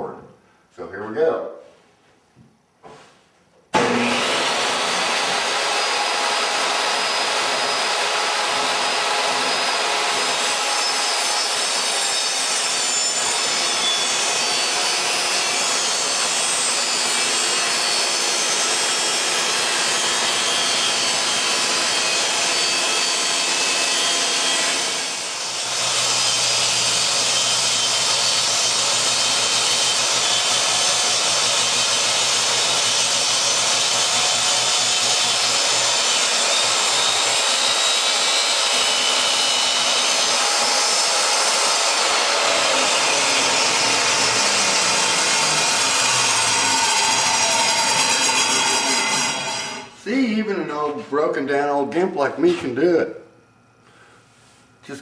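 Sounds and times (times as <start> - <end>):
table saw ripping a board: 3.7 - 50.0.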